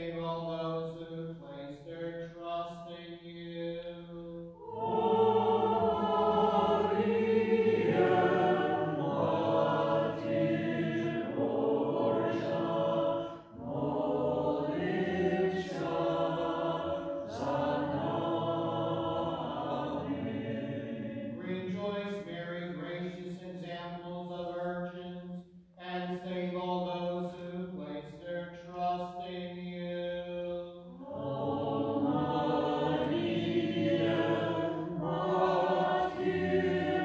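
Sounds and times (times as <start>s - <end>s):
group singing liturgical chant: 4.4s - 22.2s, 30.6s - 37.0s.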